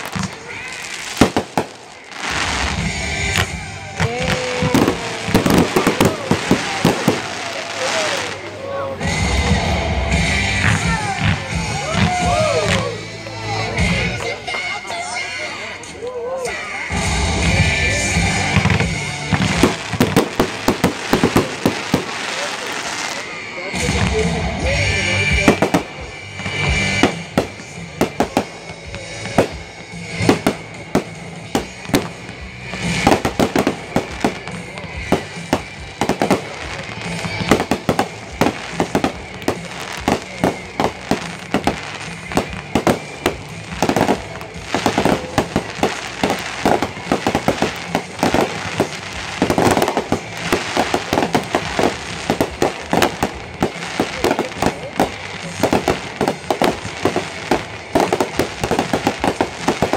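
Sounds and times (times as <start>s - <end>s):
firework rushing blast: 0.0s - 12.9s, 18.1s - 24.6s, 25.3s - 59.9s
fireworks banging: 0.0s - 59.9s
fireworks crackling: 0.0s - 59.9s.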